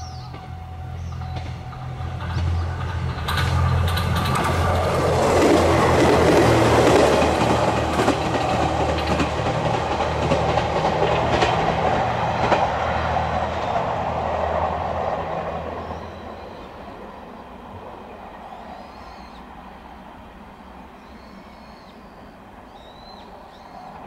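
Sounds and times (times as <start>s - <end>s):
wheels clacking over rail joints: 0.0s - 16.0s
train passing: 0.0s - 24.0s.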